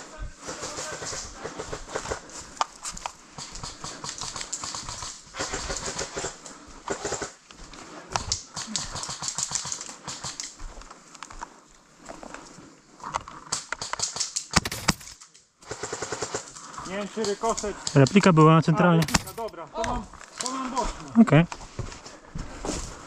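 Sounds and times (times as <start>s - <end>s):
footsteps on dry ground: 10.5s - 13.0s, 20.8s - 23.0s
gear knocking together: 14.6s - 15.2s.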